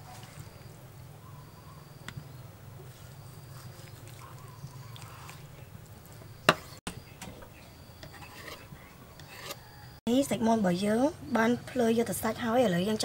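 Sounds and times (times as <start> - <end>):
knife cutting raw chicken: 2.9 - 5.4.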